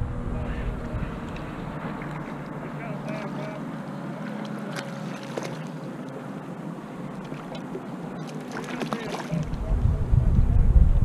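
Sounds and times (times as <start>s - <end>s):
wind on microphone: 0.0s - 2.4s, 9.1s - 11.0s
water lapping against kayak: 0.3s - 10.0s.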